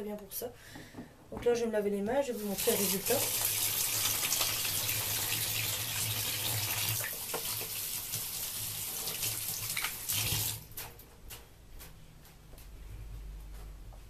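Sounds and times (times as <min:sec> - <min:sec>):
water running from tap: 0:02.3 - 0:10.7
hands washing under water: 0:02.4 - 0:10.8.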